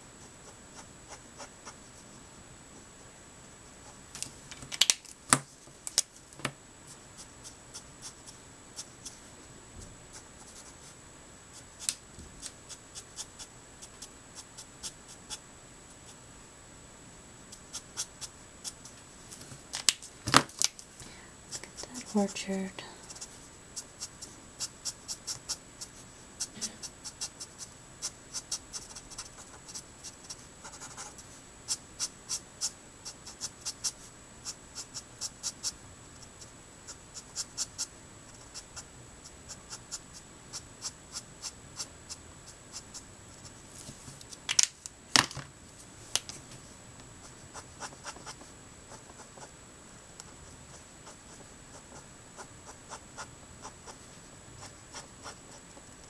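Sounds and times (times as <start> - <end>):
marker scratching on paper: 12.4 - 15.4, 17.5 - 19.0, 23.1 - 35.7, 36.4 - 38.8, 47.3 - 49.5, 50.7 - 55.7.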